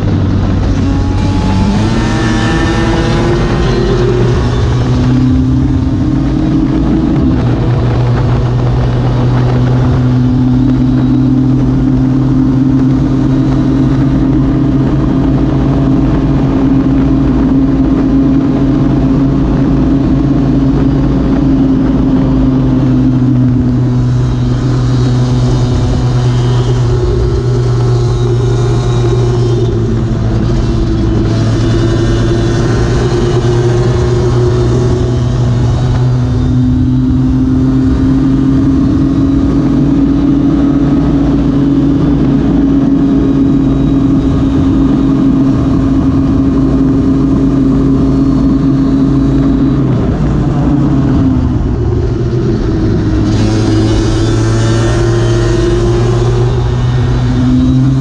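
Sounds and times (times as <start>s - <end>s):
scooter engine at high revs: 0.0s - 58.0s.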